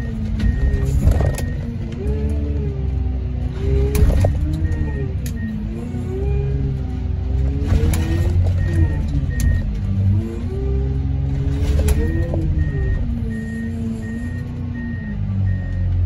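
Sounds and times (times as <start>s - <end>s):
heavy diesel machinery engine: 0.0s - 16.0s
backup alarm beeping: 8.0s - 9.8s, 11.7s - 15.9s.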